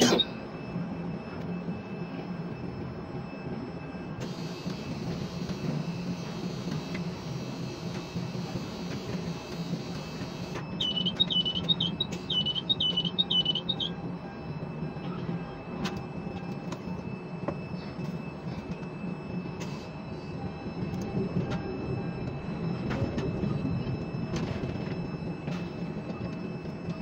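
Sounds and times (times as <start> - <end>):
crane machinery humming: 0.0 - 27.0
high electronic chirps: 10.8 - 13.9.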